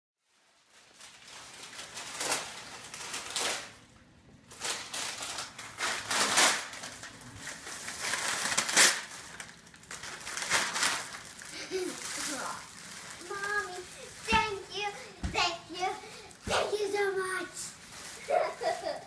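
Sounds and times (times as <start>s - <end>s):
wrapping paper rustling and crinkling: 0.2s - 19.0s.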